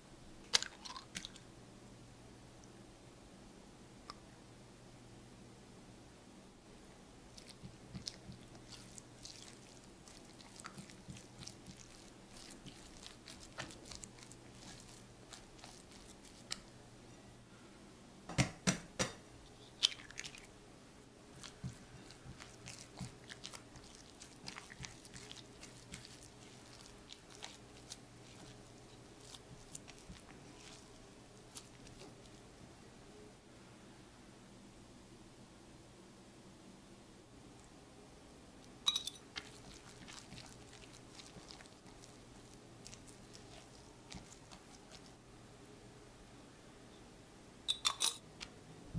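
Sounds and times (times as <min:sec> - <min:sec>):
spatula stirring sticky dough: 0:07.2 - 0:16.8, 0:19.5 - 0:20.5, 0:21.2 - 0:32.6, 0:38.9 - 0:45.3.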